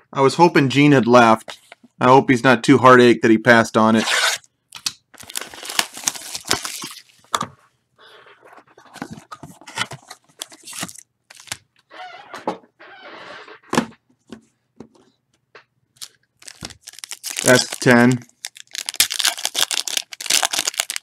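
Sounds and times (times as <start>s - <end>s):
plastic wrapping tearing and crinkling: 5.2s - 7.2s, 16.0s - 21.0s.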